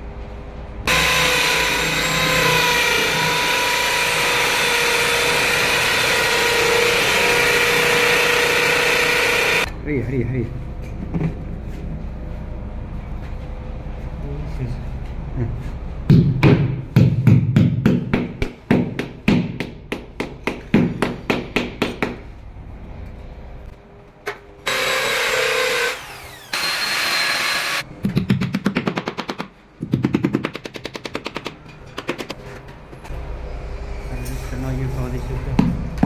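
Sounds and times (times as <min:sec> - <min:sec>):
drill running: 0:00.9 - 0:09.7, 0:24.7 - 0:27.8.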